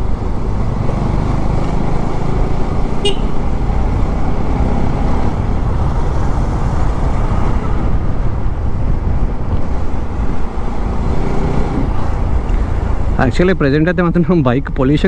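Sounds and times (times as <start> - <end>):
motorcycle engine: 0.0 - 8.6
wind noise: 3.0 - 13.4.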